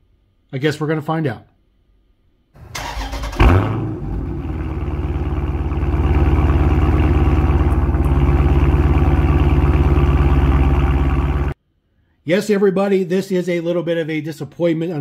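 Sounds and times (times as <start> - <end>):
car engine starting and idling: 2.6 - 11.6.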